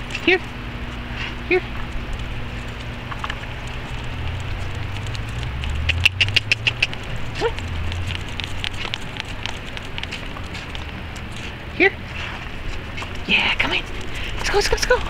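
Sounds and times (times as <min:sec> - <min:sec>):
footsteps on pavement: 0:00.0 - 0:15.0
steady low rumble: 0:00.0 - 0:15.0
sharp clicks: 0:01.8 - 0:11.3
dog harness clicks: 0:01.8 - 0:11.6.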